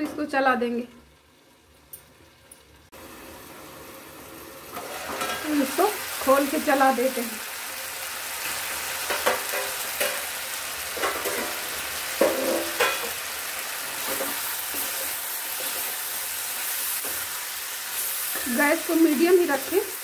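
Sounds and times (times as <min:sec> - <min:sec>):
vegetables sizzling in frying pan: 0:00.2 - 0:20.0.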